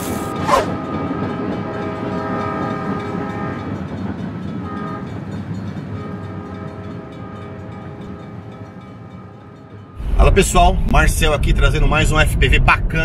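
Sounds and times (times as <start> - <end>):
train horn chord: 0.0 - 3.9, 4.6 - 5.3, 5.9 - 10.0
low rumble: 10.0 - 13.0.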